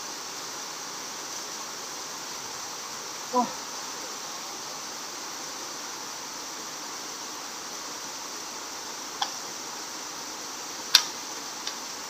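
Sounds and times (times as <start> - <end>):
outdoor background hiss: 0.0 - 12.0
light click: 10.9 - 11.8.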